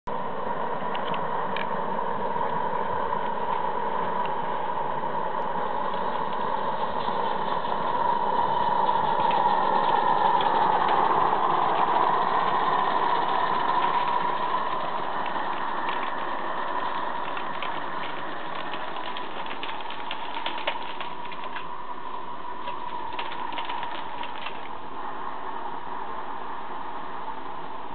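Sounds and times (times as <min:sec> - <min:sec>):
model train whirring on track: 0:00.1 - 0:27.9
wheels clicking over rail joints: 0:05.4 - 0:24.9.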